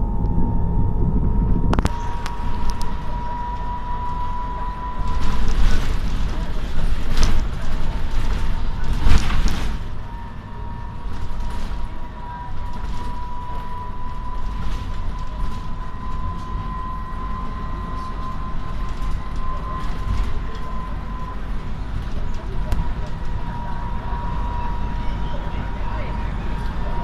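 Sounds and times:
high whine: 0.0 - 7.5
bus ride rumble: 0.0 - 27.0
faint rattles and creaks: 1.7 - 24.3.

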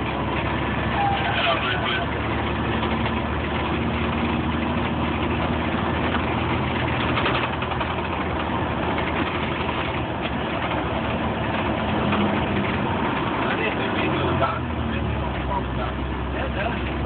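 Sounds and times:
diesel engine droning: 0.0 - 17.0
road noise: 0.0 - 17.0.

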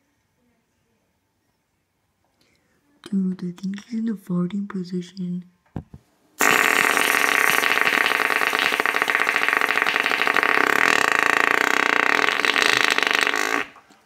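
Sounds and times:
long fart noise: 6.4 - 13.9.

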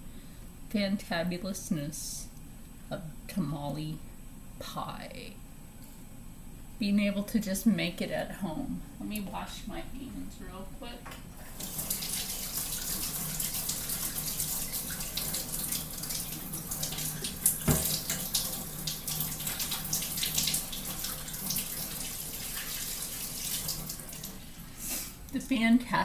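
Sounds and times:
faucet running into sink: 11.4 - 24.6.

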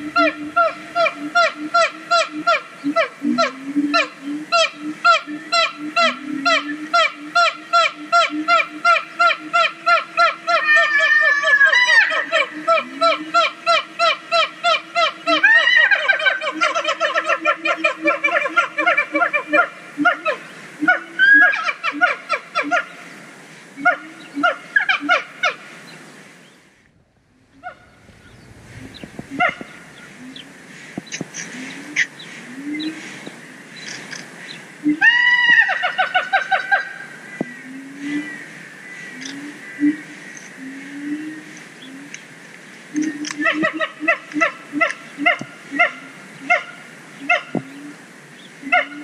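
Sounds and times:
gibbons barking calls: 0.0 - 23.0, 23.8 - 25.7, 27.4 - 33.1, 34.8 - 38.3, 43.0 - 48.0, 48.6 - 49.0
gibbons honking barks: 14.7 - 22.9, 27.6 - 28.1, 29.2 - 30.4, 48.6 - 49.0.

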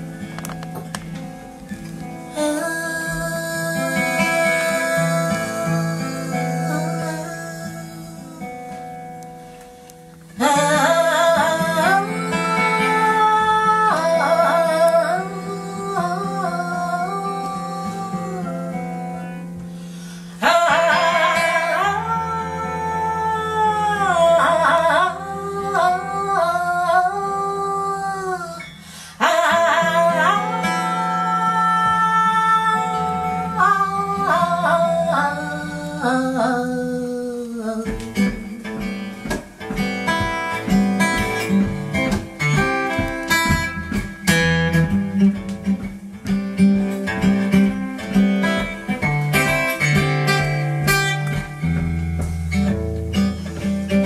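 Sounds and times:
acoustic guitar: 0.0 - 54.0
woman singing jazz: 2.2 - 9.2, 10.3 - 19.7, 20.4 - 43.9.

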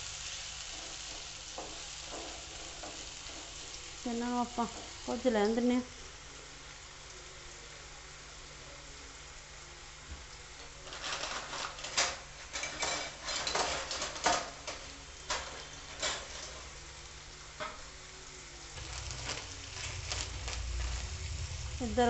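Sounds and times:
vegetables sizzling in hot oil: 0.0 - 22.0
oil crackling and popping: 10.3 - 16.8, 18.7 - 22.0.

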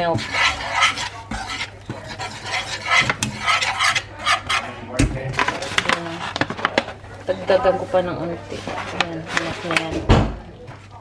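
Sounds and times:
whisk knocking against pan: 0.0 - 5.1
whisk scraping a metal pan: 0.0 - 10.0.

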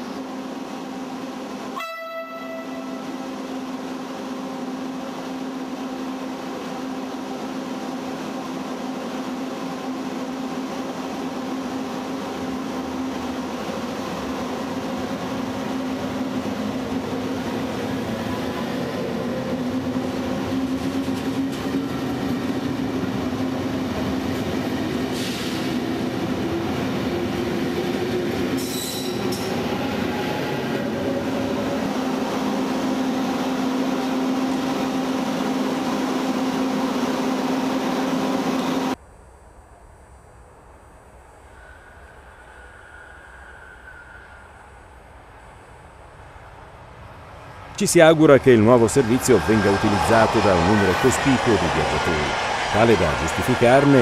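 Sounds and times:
electric train humming: 0.0 - 39.0, 41.3 - 54.0
high-pitched wheel squeals: 28.6 - 29.5.

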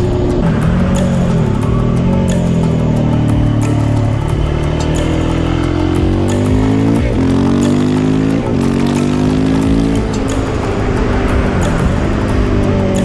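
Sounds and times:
background music: 0.0 - 13.0
motorcycle engine accelerating: 0.0 - 13.0.

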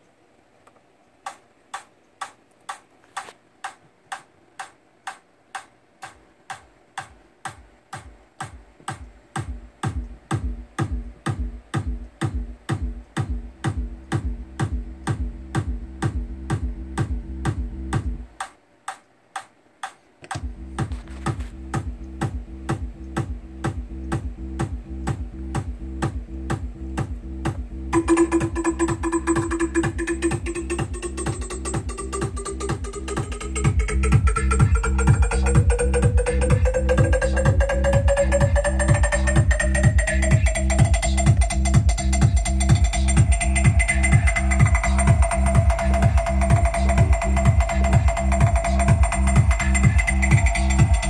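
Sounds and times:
ticking hi-hats: 0.0 - 51.0
electronic kick drum: 5.1 - 19.5, 20.2 - 51.0
sustained bass line: 20.4 - 51.0.

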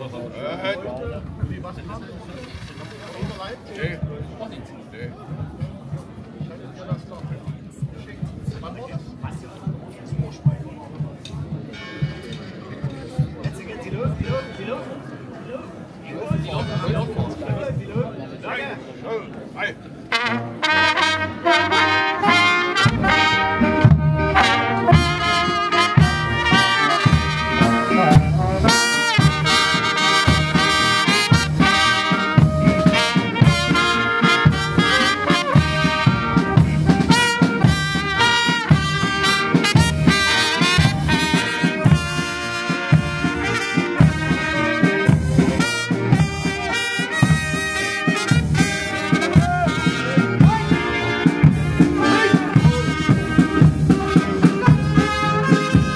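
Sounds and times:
brass band playing a march: 20.1 - 55.9.

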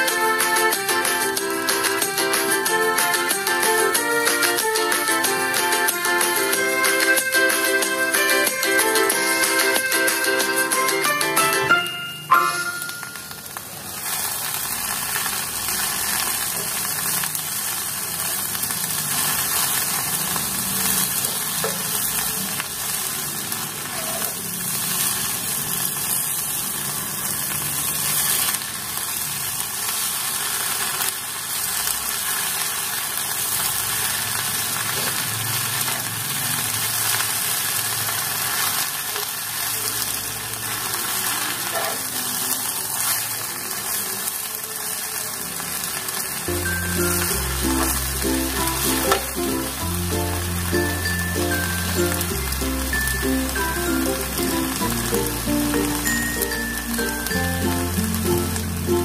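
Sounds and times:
leaves sizzling in a pan: 0.0 - 59.0.

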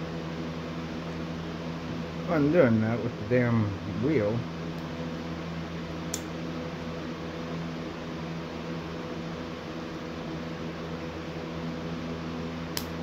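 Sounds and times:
low machine hum: 0.0 - 13.0
small sharp click: 6.1 - 6.3, 12.7 - 13.0.

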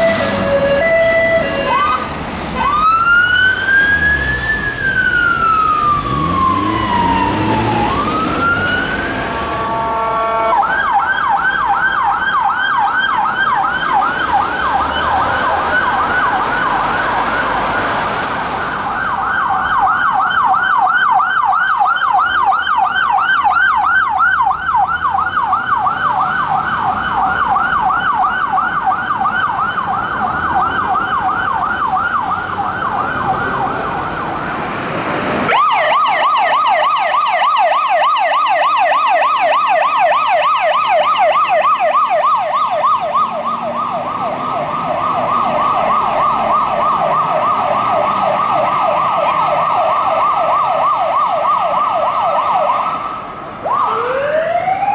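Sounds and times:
emergency vehicle sirens: 0.0 - 54.9
street traffic: 0.0 - 54.9.

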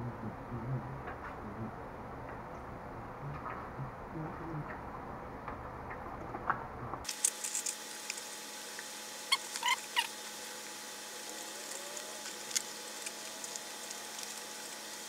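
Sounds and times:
steady hiss: 7.1 - 15.0
rubber squeaking and rubbing: 9.3 - 10.2.

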